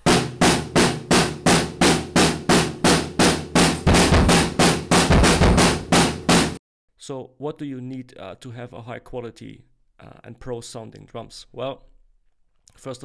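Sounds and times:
drum kit playing steady beat: 0.0 - 6.6.

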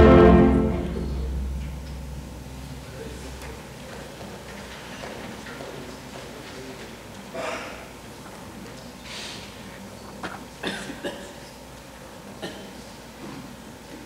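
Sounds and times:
person coughing: 7.4 - 7.9, 10.6 - 11.4.

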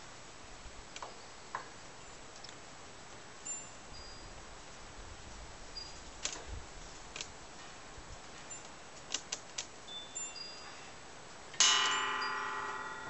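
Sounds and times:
loud ringing metallic clang: 11.6 - 13.0.

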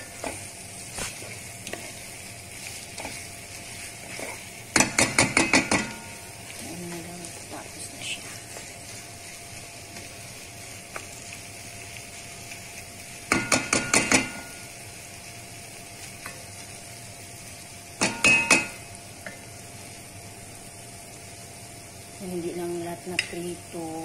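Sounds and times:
low sizzle: 0.0 - 24.0
wooden spoon stirring sauce: 0.1 - 12.8
spoon knocking against pan: 4.7 - 6.2, 13.3 - 14.6, 18.0 - 18.8.

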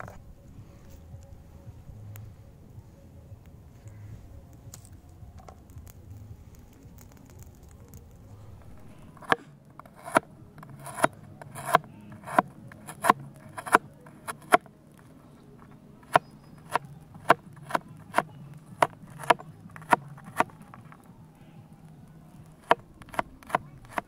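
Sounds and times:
knife chopping on plastic board: 9.2 - 14.7, 16.0 - 20.6, 22.6 - 24.0.

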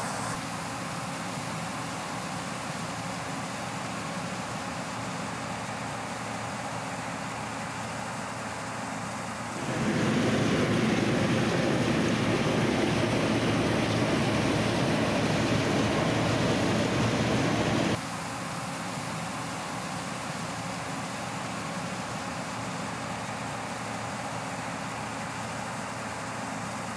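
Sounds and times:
combine harvester running: 0.0 - 26.9
steady mechanical hum: 0.0 - 26.9.

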